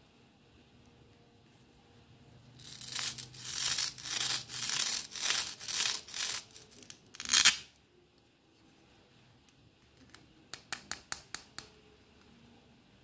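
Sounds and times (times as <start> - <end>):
velcro rasping: 2.6 - 7.6
velcro ripping apart: 2.6 - 7.7.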